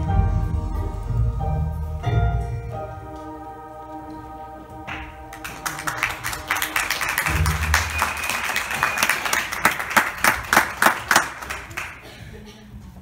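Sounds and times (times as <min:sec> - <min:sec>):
audience applauding: 0:04.9 - 0:12.2.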